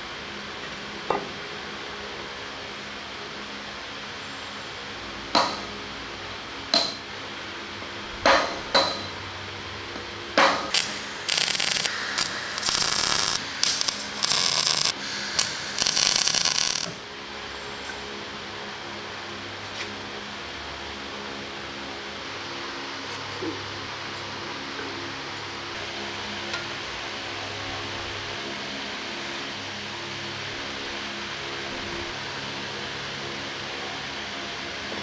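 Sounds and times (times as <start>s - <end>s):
welder crackling: 10.4s - 17.0s.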